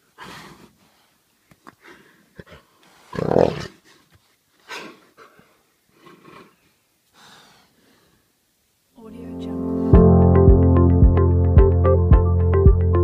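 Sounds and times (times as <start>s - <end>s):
jaguars snarling and growling: 2.4s - 3.9s, 4.7s - 6.7s.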